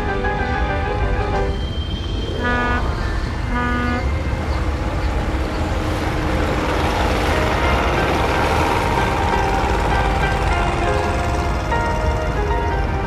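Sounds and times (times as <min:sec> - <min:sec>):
hissing wash of noise: 0:00.0 - 0:13.0
boat horn toots: 0:02.3 - 0:04.3.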